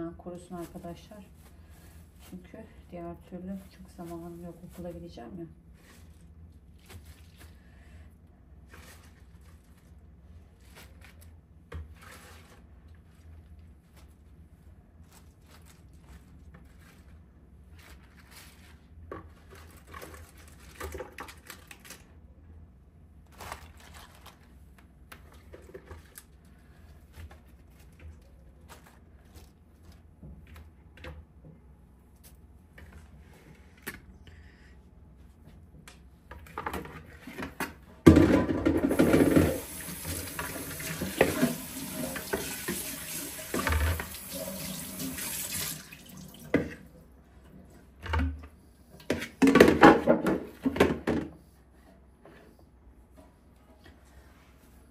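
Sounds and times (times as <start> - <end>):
rustling of greens: 0.4 - 7.9, 8.6 - 22.1, 23.2 - 30.6
tap water running into sink: 38.9 - 46.7.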